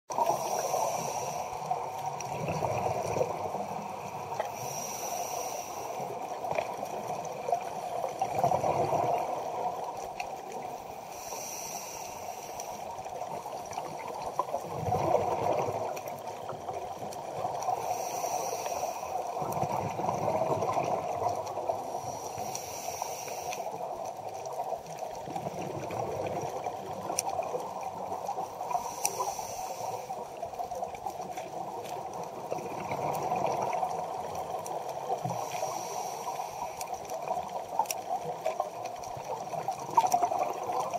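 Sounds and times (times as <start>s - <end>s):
steady underwater hiss: 0.1s - 40.9s
scuba regulator inhale hiss: 0.2s - 2.2s, 4.3s - 6.3s, 11.0s - 13.0s, 17.6s - 19.3s, 21.8s - 23.9s, 28.6s - 30.4s, 35.2s - 37.1s.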